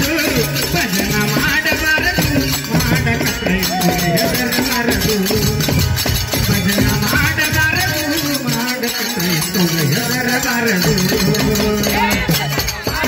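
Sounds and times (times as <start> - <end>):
steady percussion: 0.0 - 13.0.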